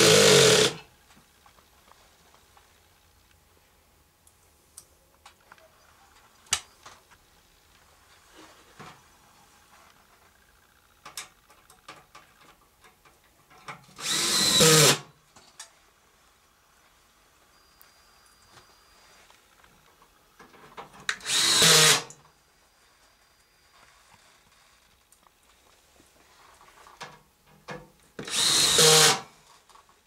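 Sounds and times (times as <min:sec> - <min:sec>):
cordless drill whirring: 0:00.0 - 0:00.8, 0:14.0 - 0:15.0, 0:21.2 - 0:22.1, 0:28.2 - 0:29.3.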